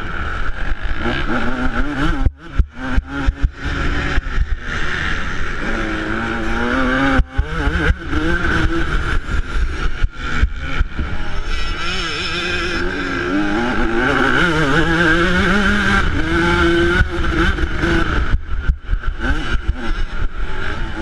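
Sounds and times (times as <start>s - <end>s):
two-stroke engine revving: 0.0s - 21.0s.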